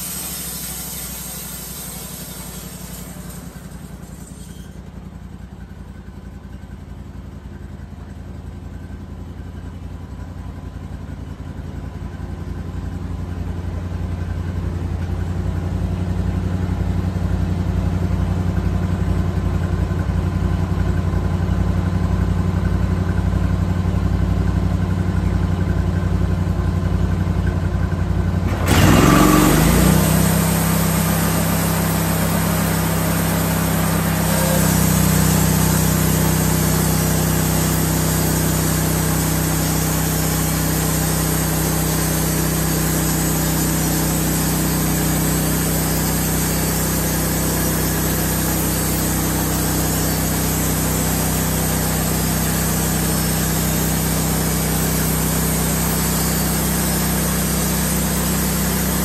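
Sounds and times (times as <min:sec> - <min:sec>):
band saw blade rushing: 0:00.0 - 0:05.0, 0:28.4 - 0:59.0
sawmill engine running: 0:00.0 - 0:11.4, 0:24.7 - 0:59.0.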